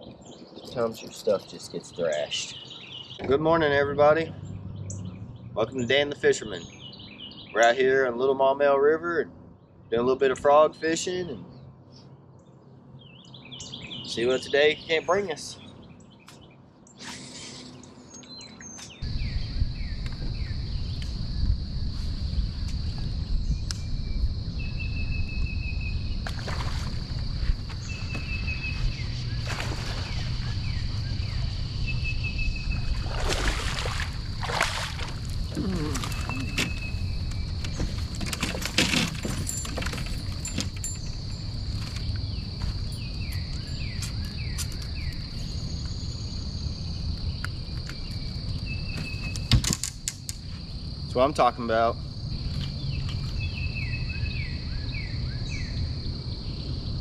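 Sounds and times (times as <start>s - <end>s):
bird chirps: 0.0s - 7.8s, 11.5s - 21.2s, 27.7s - 33.1s, 35.4s - 38.2s, 40.4s - 49.5s, 52.6s - 56.8s
insect drone: 17.0s - 57.0s.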